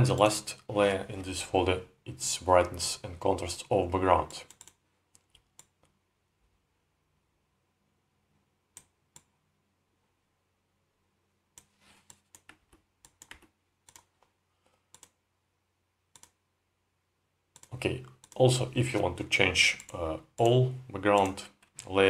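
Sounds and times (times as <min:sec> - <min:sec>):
computer mouse clicking: 0:04.2 - 0:06.0, 0:08.7 - 0:09.3, 0:11.6 - 0:14.3, 0:14.9 - 0:15.2, 0:16.1 - 0:16.4, 0:17.5 - 0:18.4, 0:19.7 - 0:21.9.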